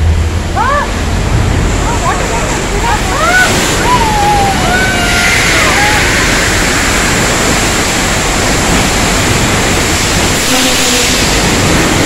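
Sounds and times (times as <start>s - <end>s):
rushing floodwater: 0.0s - 12.0s
gliding cries: 2.0s - 6.9s.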